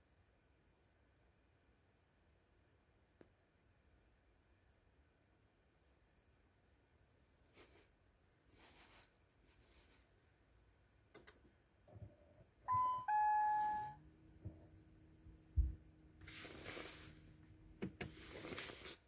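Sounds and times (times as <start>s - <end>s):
rustling: 7.1s - 10.8s, 13.4s - 19.0s
two-note notification chime: 12.7s - 14.0s
dull thump: 15.4s - 15.9s.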